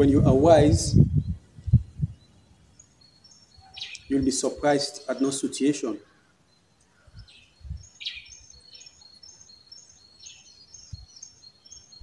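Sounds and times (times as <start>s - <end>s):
faint low thumps: 0.0s - 2.2s
bird chirping: 0.0s - 12.0s.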